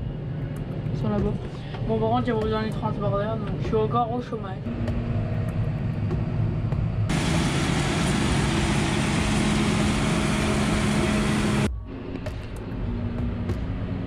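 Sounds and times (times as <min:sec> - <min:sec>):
cab hum: 0:04.7 - 0:11.7
combine harvester running: 0:04.7 - 0:11.7.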